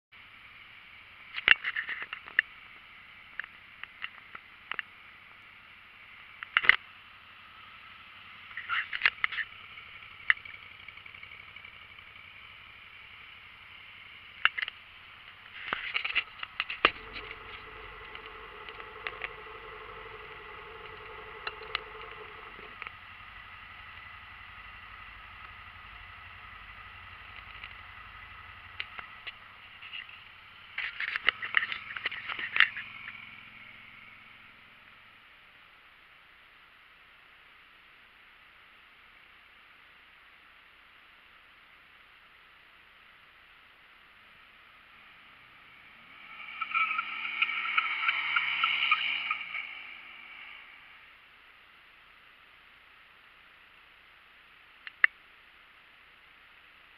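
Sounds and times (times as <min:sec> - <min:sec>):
motorcycle engine idling: 0:04.4 - 0:35.3
clicks and scraping: 0:14.4 - 0:23.0, 0:30.8 - 0:32.9
high steady tone: 0:16.2 - 0:29.7.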